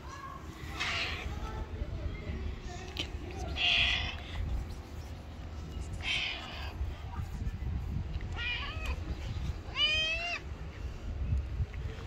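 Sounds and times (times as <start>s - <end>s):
cat meowing: 9.7s - 10.4s.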